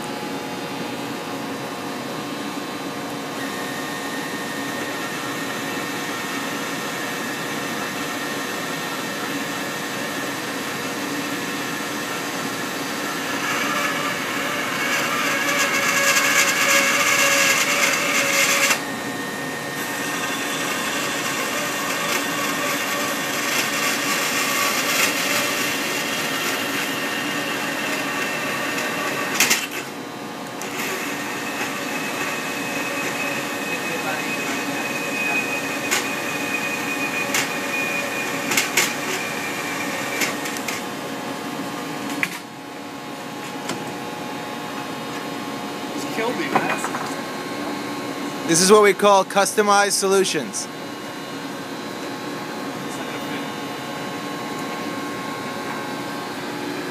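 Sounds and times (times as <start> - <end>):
band saw cutting metal: 9.0 - 18.9, 19.6 - 30.0, 30.6 - 40.9.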